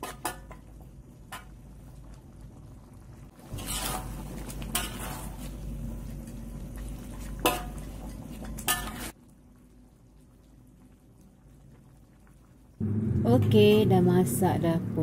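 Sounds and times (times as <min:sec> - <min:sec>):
gravy bubbling: 0:00.6 - 0:13.4
metal spatula scraping wok: 0:03.5 - 0:05.6, 0:07.3 - 0:09.2.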